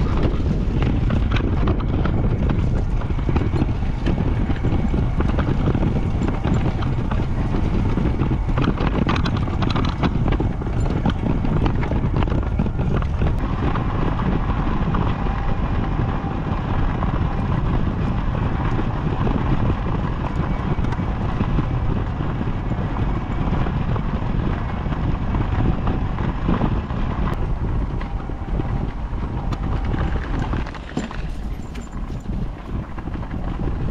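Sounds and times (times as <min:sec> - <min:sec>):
wind buffeting microphone: 0:00.0 - 0:33.9
tyres crunching over gravel: 0:27.4 - 0:33.9.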